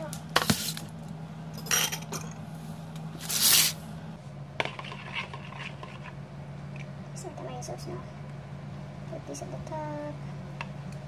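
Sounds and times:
steady low hum: 0:00.0 - 0:11.0
spoon scraping plastic bowl: 0:04.6 - 0:06.2.

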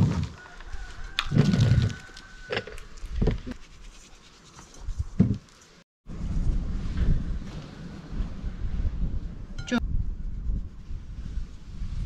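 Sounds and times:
wind gusts on microphone: 0:06.1 - 0:12.0.

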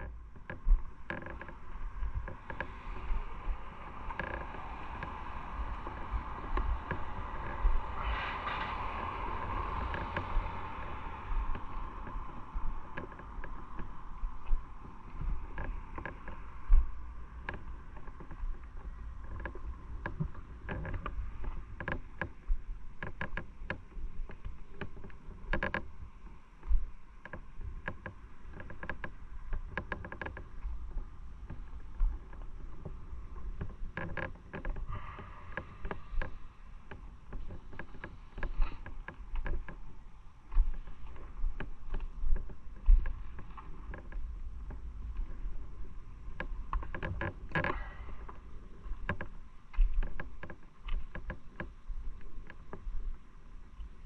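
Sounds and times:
motorcycle rumble: 0:00.0 - 0:16.0
wind noise on microphone: 0:00.0 - 0:54.0.

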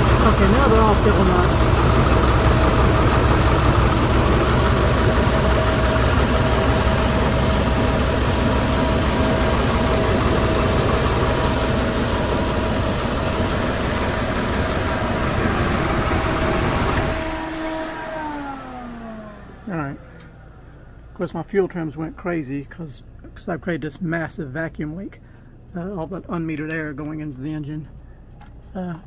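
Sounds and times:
engine idling roughly: 0:00.0 - 0:17.5.

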